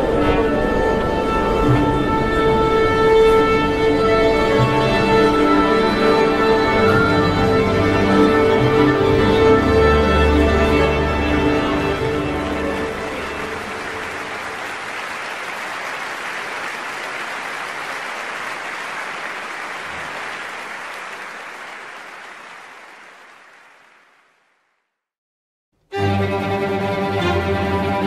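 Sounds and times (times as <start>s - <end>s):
audience applauding: 11.8s - 24.6s.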